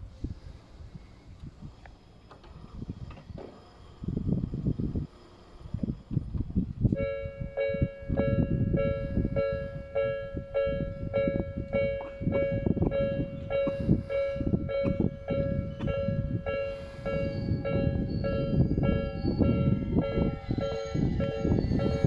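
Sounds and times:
low rumble: 0.0s - 22.0s
level crossing alarm ringing: 6.9s - 22.0s.

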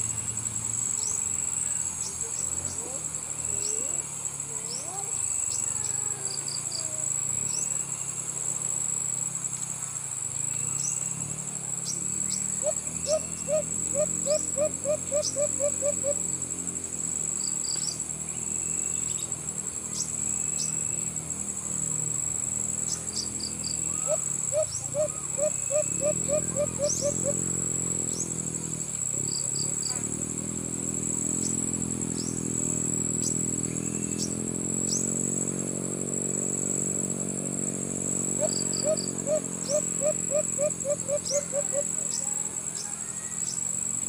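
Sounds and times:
insects shrilling: 0.0s - 44.0s
bird chirps: 10.6s - 16.4s, 22.8s - 30.2s, 31.1s - 35.4s, 38.3s - 43.8s
dove hooting: 12.5s - 16.4s, 23.7s - 28.0s, 38.3s - 43.7s.

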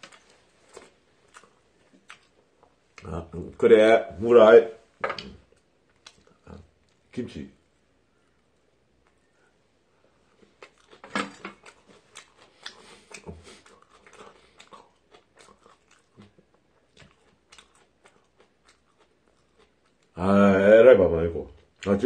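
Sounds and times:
man chewing crunchy food: 0.0s - 3.1s, 5.5s - 7.1s, 10.3s - 20.2s.

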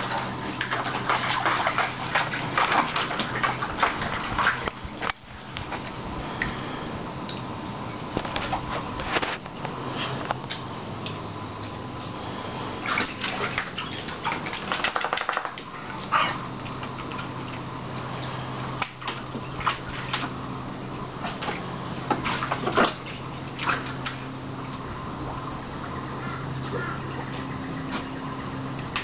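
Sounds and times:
dog splashing in water: 0.0s - 5.8s, 12.8s - 24.7s
steady low hum: 0.0s - 29.0s.

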